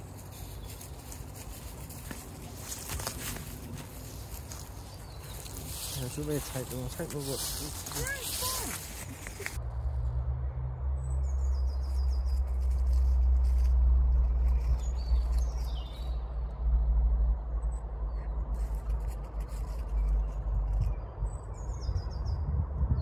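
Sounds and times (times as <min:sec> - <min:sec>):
birds chirping: 0:00.0 - 0:09.6, 0:14.6 - 0:16.4.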